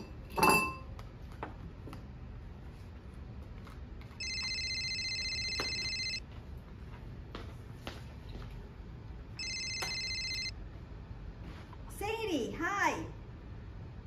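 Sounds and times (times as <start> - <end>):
spoon clinking dishes: 0.0 - 0.9
cell phone ringtone trilling: 4.2 - 6.2, 9.4 - 10.5.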